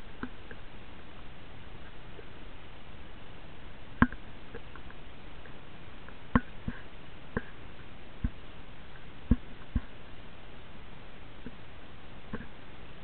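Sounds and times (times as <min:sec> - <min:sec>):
steady hiss: 0:00.0 - 0:13.0.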